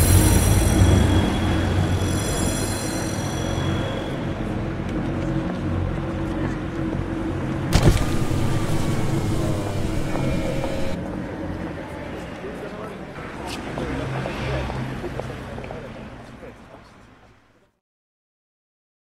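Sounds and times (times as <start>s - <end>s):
traffic noise: 0.0s - 17.7s
car engine running: 7.6s - 11.0s
sharp knock: 7.7s - 11.0s.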